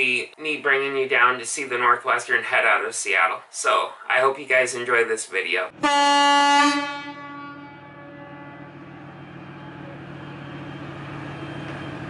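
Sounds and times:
diesel engines humming: 5.7s - 12.0s
ship's horn blast: 5.8s - 10.7s.

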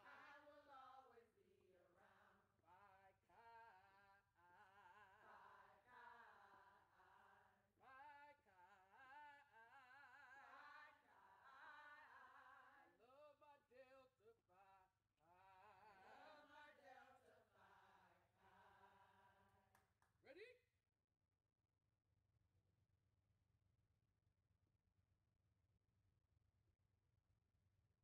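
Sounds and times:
women singing together: 0.0s - 19.7s.

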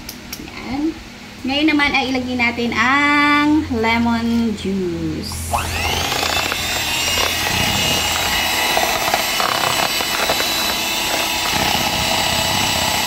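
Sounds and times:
electric hand mixer whipping batter: 5.5s - 13.0s.

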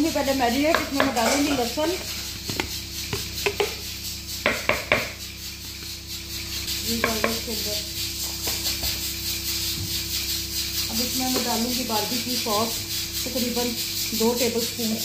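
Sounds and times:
steady low hum: 0.0s - 15.0s
spoon tapping against jar and bowl: 2.5s - 3.8s.

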